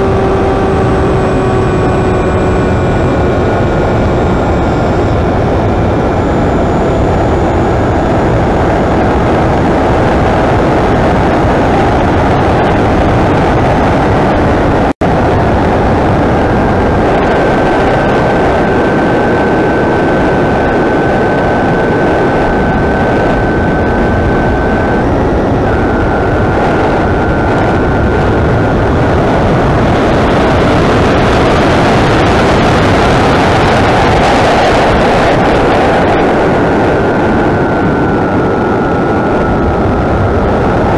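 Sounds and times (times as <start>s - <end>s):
electric motor whine: 0.0s - 40.9s
wind rush: 0.0s - 40.9s.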